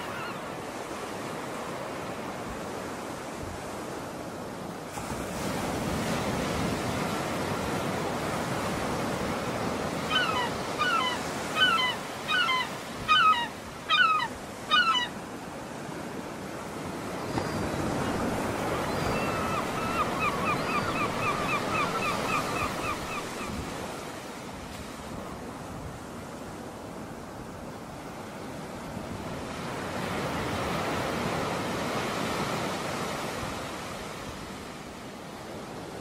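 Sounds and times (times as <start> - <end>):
waves washing: 0.0 - 34.8
bird calling: 10.0 - 15.2, 17.2 - 23.6.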